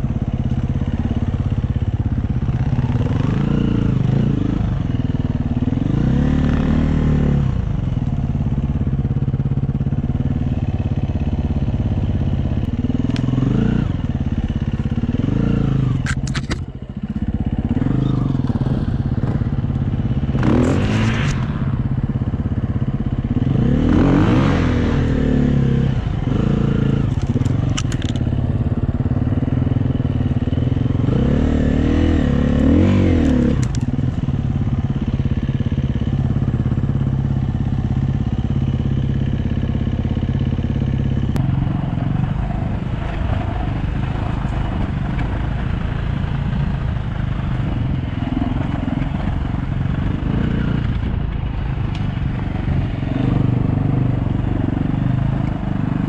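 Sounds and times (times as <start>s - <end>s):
dirt bike engine revving: 2.4s - 4.9s, 5.5s - 7.7s, 12.8s - 16.1s, 17.1s - 37.2s
sharp clicks: 27.1s - 28.3s.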